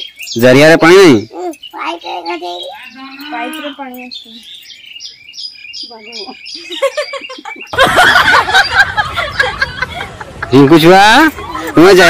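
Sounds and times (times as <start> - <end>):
bird chirping: 0.0 - 12.0.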